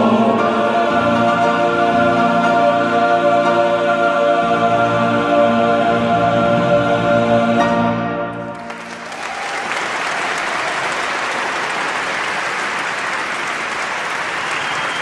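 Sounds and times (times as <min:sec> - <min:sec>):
crowd applauding: 0:08.5 - 0:15.0.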